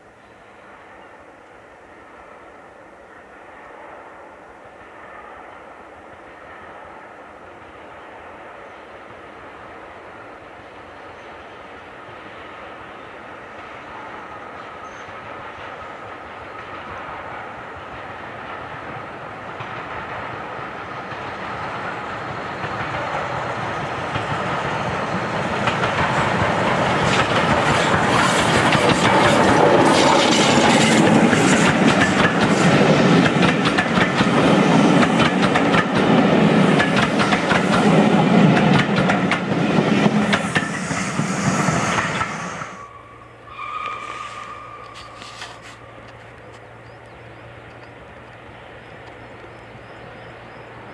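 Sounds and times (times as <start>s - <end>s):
steam locomotive passing: 0.0s - 50.9s
coaches clattering over rail joints: 22.6s - 41.0s.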